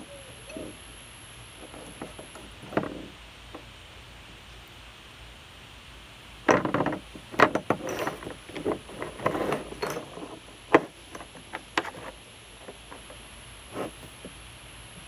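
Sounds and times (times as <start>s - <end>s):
metal hardware clinking on concrete: 9.1s - 10.2s.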